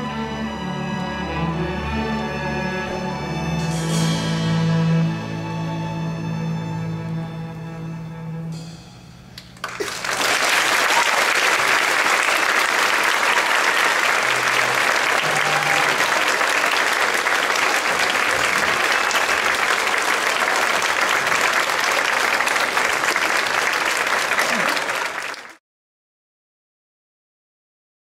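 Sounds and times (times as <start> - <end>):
audience applauding: 9.5 - 25.6.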